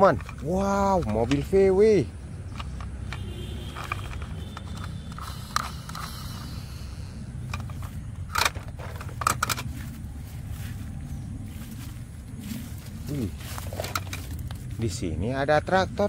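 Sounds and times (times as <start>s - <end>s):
plastic toys knocking and clacking: 0.0s - 6.5s, 7.4s - 9.7s, 13.6s - 14.7s
handling plastic toy: 0.0s - 6.8s, 7.4s - 10.0s, 13.4s - 14.8s
low rumble: 5.1s - 14.9s.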